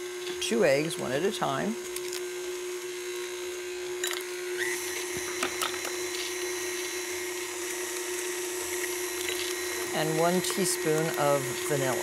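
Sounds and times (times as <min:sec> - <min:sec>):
stand mixer running: 0:00.0 - 0:12.0.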